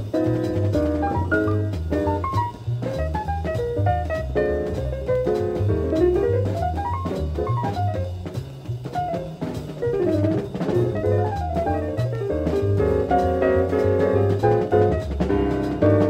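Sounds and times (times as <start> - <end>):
drum kit and bass: 0.0 - 16.0
fast lead melody: 0.0 - 16.0
jazz music: 0.0 - 16.0.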